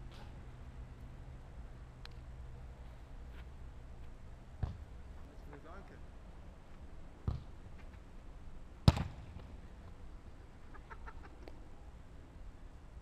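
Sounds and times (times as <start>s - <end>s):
football being kicked: 4.6s - 4.8s, 7.2s - 7.5s, 8.8s - 9.4s.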